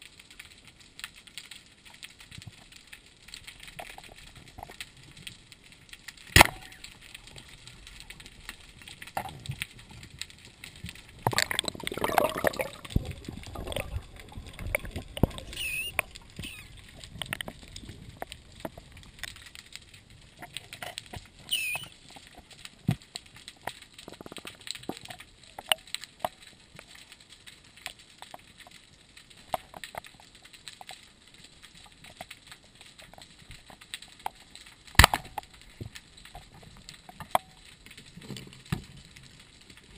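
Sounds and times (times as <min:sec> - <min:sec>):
small clicks: 0:00.0 - 0:39.9
underwater bubbling: 0:01.6 - 0:39.9
water sloshing and gurgling: 0:06.3 - 0:25.9.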